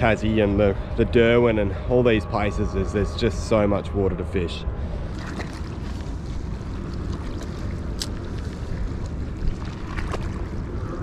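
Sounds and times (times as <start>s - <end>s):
wind rumbling on microphone: 0.0s - 11.0s
water lapping against rocks: 5.0s - 11.0s.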